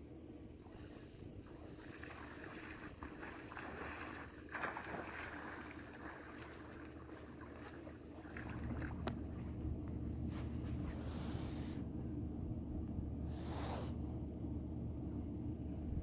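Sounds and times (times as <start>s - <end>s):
wind rumble on microphone: 0.0s - 16.0s
water splashing and sloshing: 0.6s - 11.9s.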